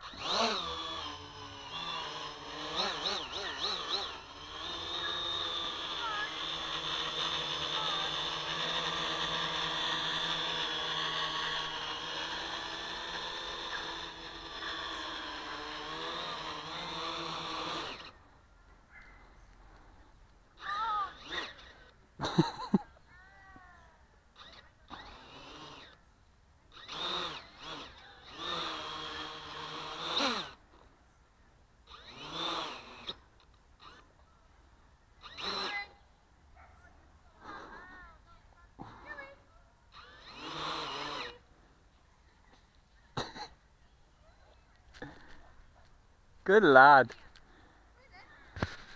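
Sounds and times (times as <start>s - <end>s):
drone propellers whirring: 0.0s - 18.2s, 20.6s - 22.6s, 26.7s - 30.6s, 31.9s - 34.1s, 39.9s - 41.6s
quadcopter motors whining: 0.0s - 18.3s, 19.0s - 23.1s, 24.3s - 26.0s, 26.7s - 30.8s, 31.8s - 34.3s, 35.2s - 36.1s, 37.4s - 41.8s, 46.6s - 48.9s.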